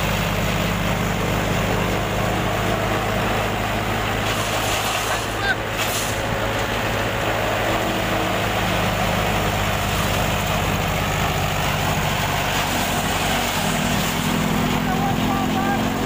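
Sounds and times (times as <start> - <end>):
tractor engine humming: 0.0 - 16.0
chaff cutter chopping stalks: 0.2 - 6.8, 11.8 - 16.0.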